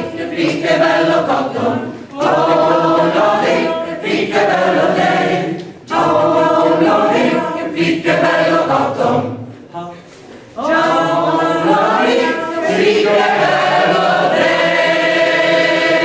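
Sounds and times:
mixed choir singing a cappella: 0.0 - 9.7, 10.5 - 16.0.

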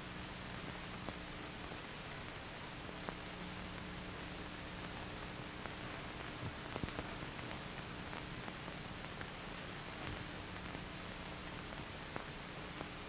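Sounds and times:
faint hum: 0.0 - 13.0
film soundtrack hiss: 0.0 - 13.0
small clicks and crackles: 0.1 - 13.0.

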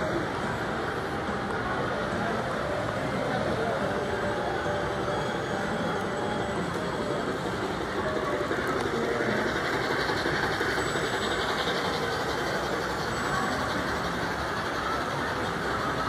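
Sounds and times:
model train running on track: 0.0 - 16.0.

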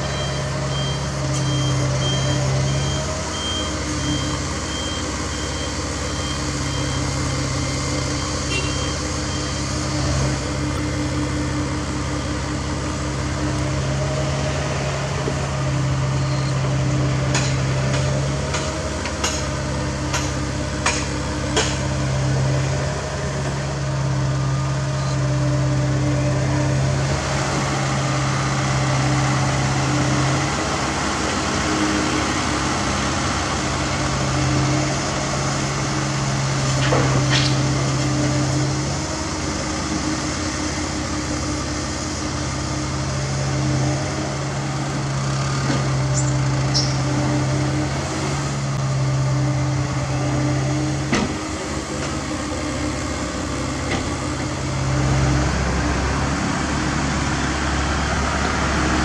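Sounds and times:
dump truck engine running: 0.0 - 59.0
excavator diesel engine working: 0.0 - 59.0.

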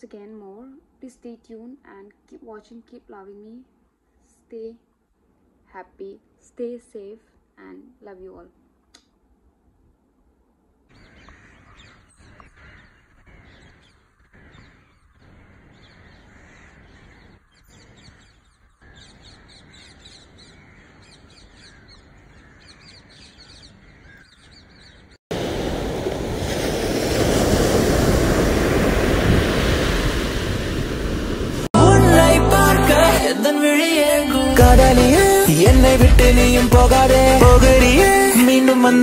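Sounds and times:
birds chirping: 10.9 - 25.2
sea waves breaking on beach: 25.3 - 31.7.

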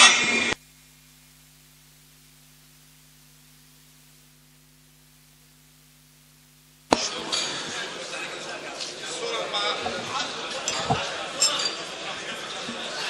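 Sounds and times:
faint electrical hum and hiss: 0.0 - 13.0
loud chatter of crowd: 6.9 - 13.0.

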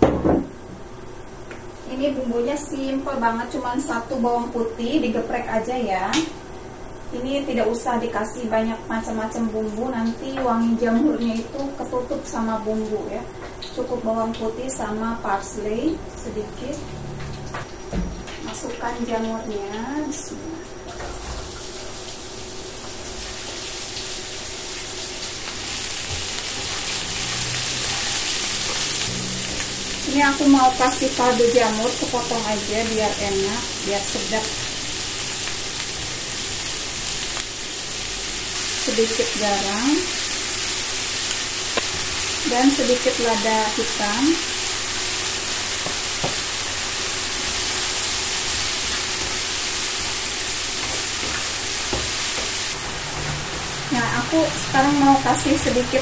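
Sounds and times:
mushrooms sizzling in oil: 21.4 - 56.0.

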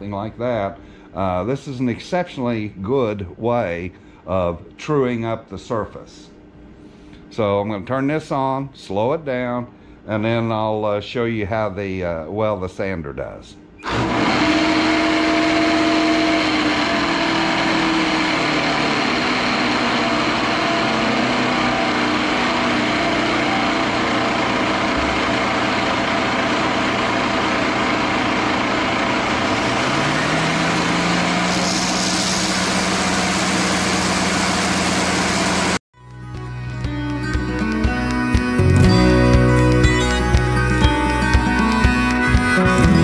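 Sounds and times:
lathe motor hum: 13.8 - 35.8
orbital sander on wood: 14.0 - 35.8.

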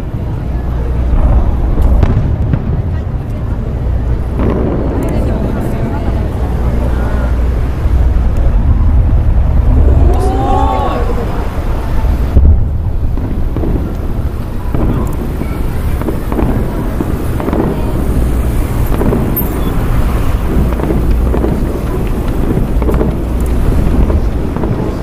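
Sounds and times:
fireworks booms rumbling: 0.0 - 25.0
loud low firework thump: 1.1 - 3.4, 4.3 - 5.7, 12.3 - 25.0.

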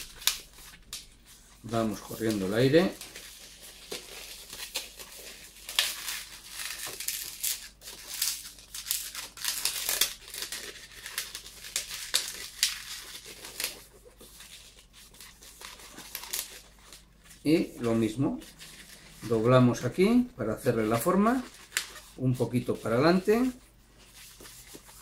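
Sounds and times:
balloon rubbing and crinkling: 9.4 - 25.0.

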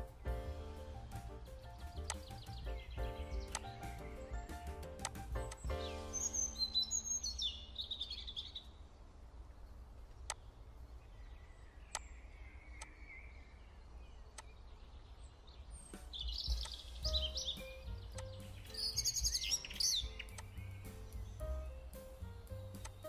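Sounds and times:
held chord: 0.0 - 7.3
birds chirping: 0.0 - 23.0
sharp clicks: 1.1 - 5.8, 14.3 - 14.6, 16.1 - 21.4, 22.0 - 23.0.

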